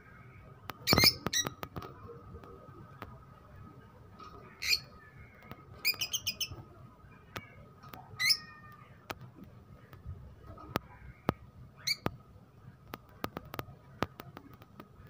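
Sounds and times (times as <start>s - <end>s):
bird chirps: 5.8s - 6.6s.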